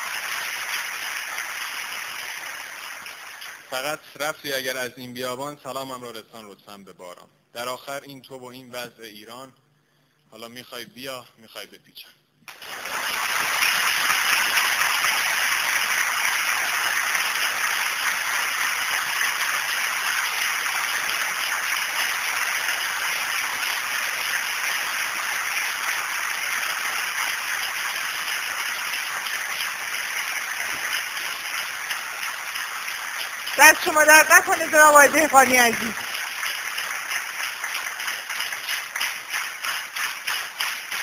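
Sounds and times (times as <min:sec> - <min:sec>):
audience applauding: 0:00.0 - 0:04.0, 0:12.5 - 0:41.0.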